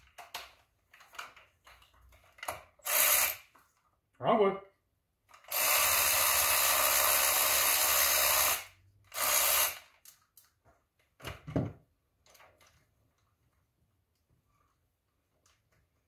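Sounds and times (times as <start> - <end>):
handheld power tool running: 2.8 - 3.5, 5.4 - 10.0.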